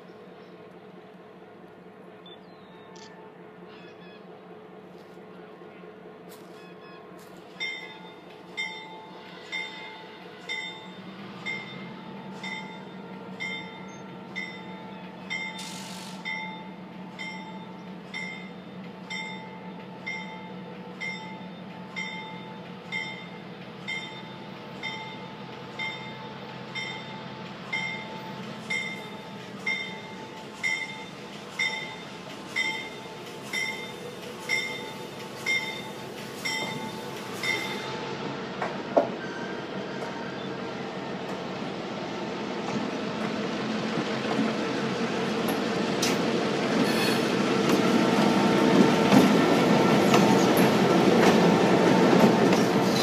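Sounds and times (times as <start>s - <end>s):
locomotive engine drone: 0.0s - 53.0s
locomotive bell ringing: 7.6s - 38.1s, 39.2s - 40.4s
brief hiss: 15.6s - 16.3s.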